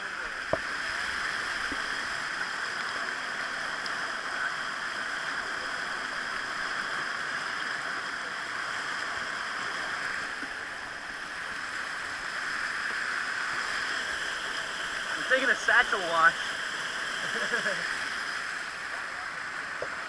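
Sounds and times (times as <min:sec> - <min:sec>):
creek rushing over rocks: 0:08.1 - 0:20.0.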